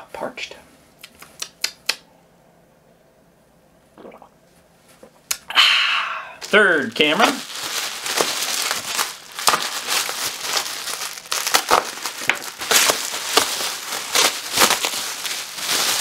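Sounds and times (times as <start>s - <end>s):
bubble wrap crinkling: 6.4s - 16.0s.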